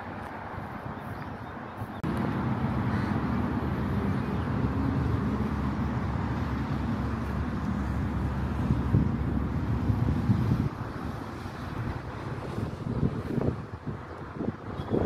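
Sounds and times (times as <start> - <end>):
road traffic rumbling: 0.0 - 15.0.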